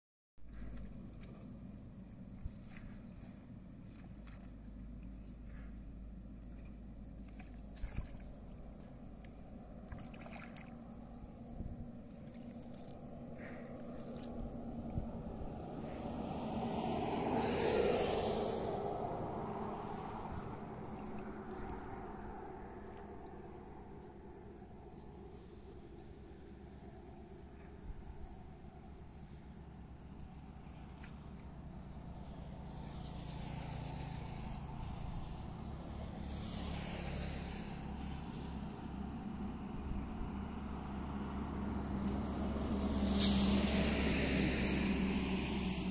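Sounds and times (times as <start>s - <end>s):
steady low hum: 0.4s - 17.0s
motor vehicle passing: 9.4s - 27.1s, 27.7s - 45.9s.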